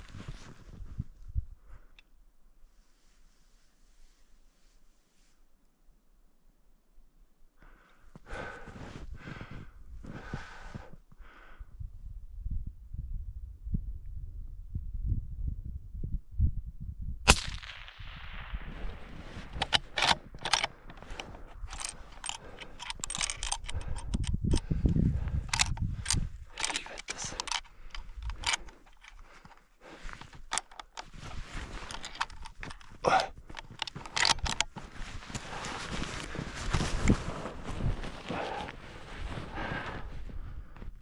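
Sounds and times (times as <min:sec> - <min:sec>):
clothing and gear rustling: 0:00.0 - 0:01.3, 0:18.8 - 0:41.0
rifle clicks: 0:17.3 - 0:18.0, 0:18.8 - 0:29.6, 0:30.2 - 0:31.1, 0:31.8 - 0:35.6.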